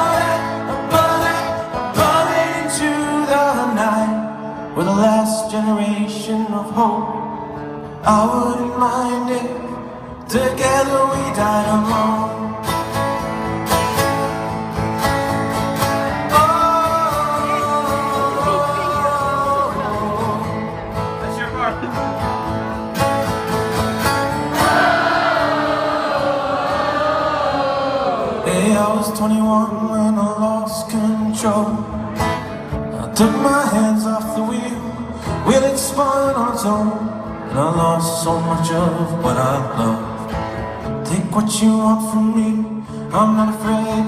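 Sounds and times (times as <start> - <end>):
acoustic guitar strumming: 0.0 - 44.0
person singing: 16.3 - 20.8.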